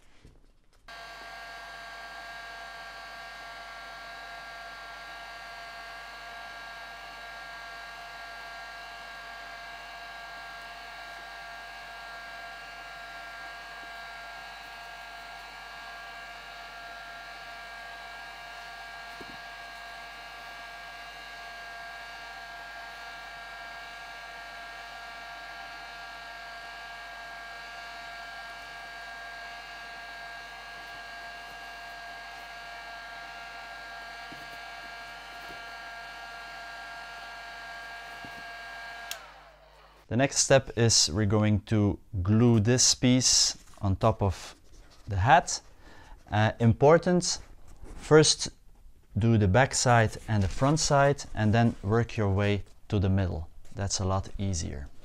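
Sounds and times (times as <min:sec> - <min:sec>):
heat gun running: 0:00.9 - 0:40.1.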